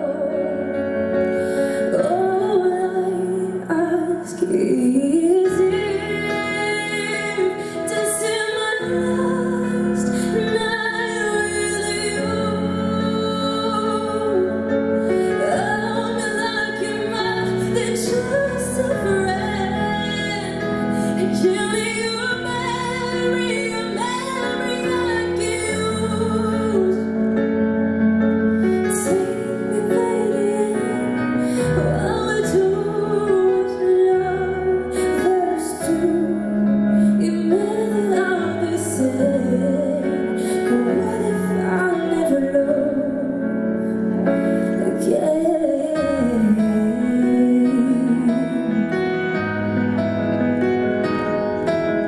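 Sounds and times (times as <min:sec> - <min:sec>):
woman singing a pop ballad: 0:00.0 - 0:27.7, 0:28.4 - 0:49.6
piano accompaniment: 0:00.0 - 0:52.0.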